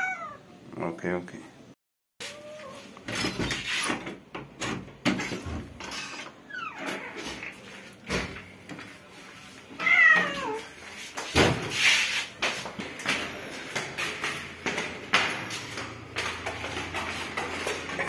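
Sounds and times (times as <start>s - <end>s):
cat meowing: 0.0s - 0.4s, 9.8s - 10.7s.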